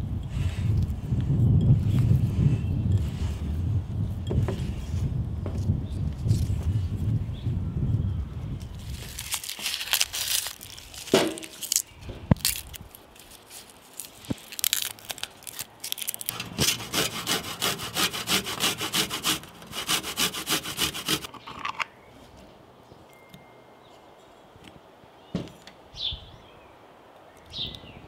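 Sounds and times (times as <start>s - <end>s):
tomatoes rasping on grater: 16.2s - 21.3s.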